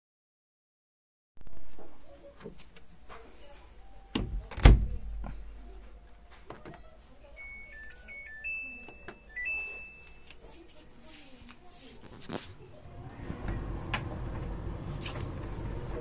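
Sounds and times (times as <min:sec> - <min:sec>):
dryer door shutting: 0:04.2 - 0:05.0, 0:13.0 - 0:16.0
electronic beeps tune: 0:07.4 - 0:10.3.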